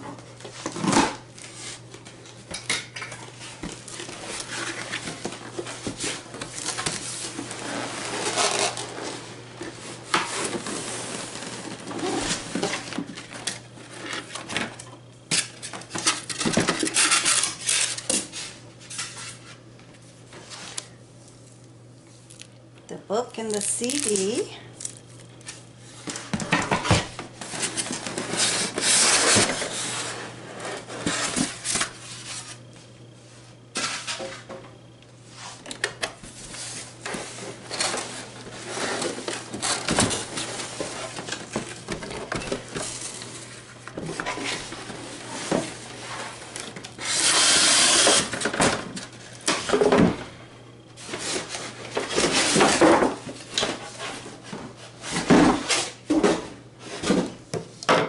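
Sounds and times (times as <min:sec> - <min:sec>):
cardboard box rustling and scraping: 0:03.4 - 0:13.2, 0:26.8 - 0:32.7
loud cardboard scrape: 0:07.6 - 0:09.2, 0:27.5 - 0:32.5.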